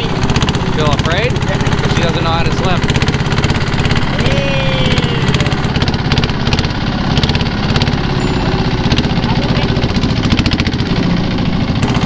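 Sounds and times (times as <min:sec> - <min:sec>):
boat engine pulsing: 0:00.0 - 0:12.0
short falling tone: 0:08.2 - 0:09.9.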